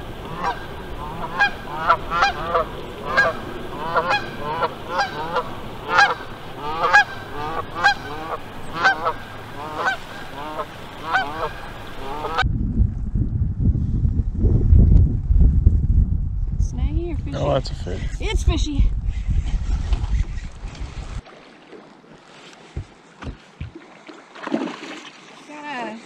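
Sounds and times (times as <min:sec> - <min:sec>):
geese honking: 0:00.1 - 0:12.4.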